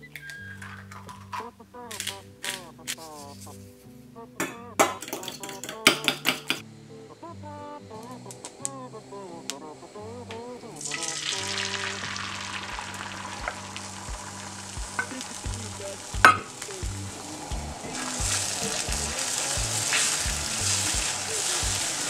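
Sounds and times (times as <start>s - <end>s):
eggs sizzling in a frying pan: 10.7s - 22.0s.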